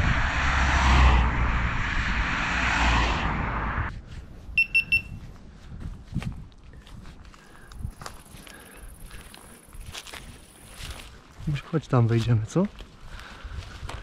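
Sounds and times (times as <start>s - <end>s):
loud rushing noise with rumble: 0.0s - 4.0s
footsteps on dry ground: 3.9s - 14.0s
high electronic beeps: 4.6s - 5.2s.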